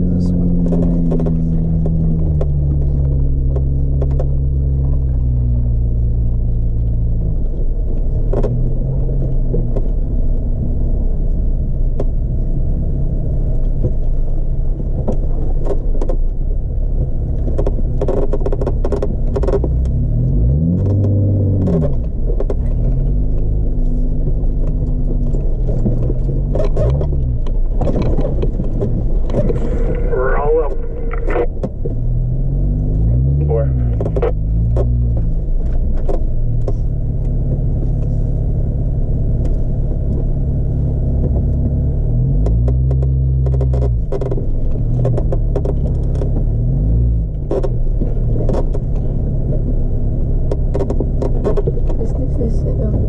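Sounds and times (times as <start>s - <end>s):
off-road vehicle engine running: 0.0s - 53.0s
knocks and rattles: 24.3s - 30.9s.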